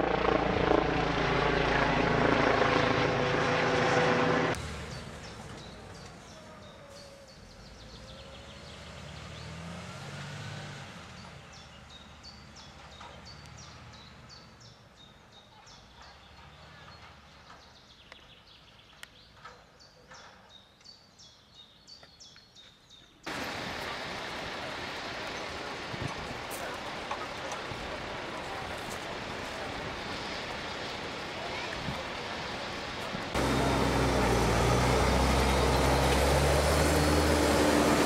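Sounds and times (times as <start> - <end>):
steady outdoor noise: 0.0 - 38.0
birds chirping: 4.8 - 9.6, 11.1 - 38.0
fire engine rumble: 23.3 - 38.0.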